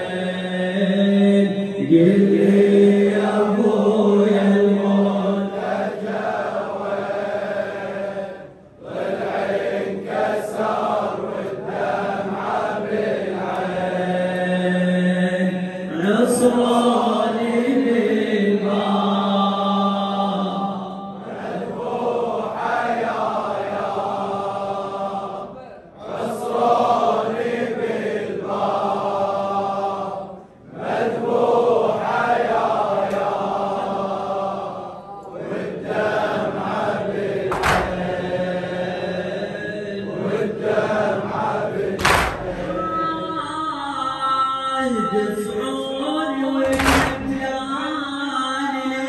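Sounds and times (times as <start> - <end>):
crowd of men chanting: 0.0 - 43.4
hands slapping chests: 37.5 - 38.1, 42.0 - 42.7, 46.7 - 47.3.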